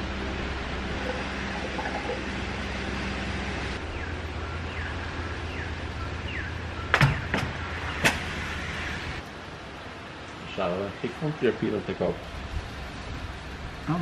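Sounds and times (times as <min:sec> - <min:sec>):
steady low hum: 0:00.0 - 0:14.0
bird chirping: 0:03.8 - 0:08.1.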